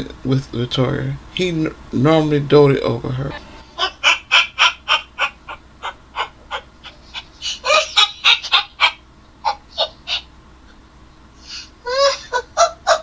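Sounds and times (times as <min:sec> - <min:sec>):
person laughing high-pitched: 0:03.6 - 0:10.3, 0:11.4 - 0:13.0.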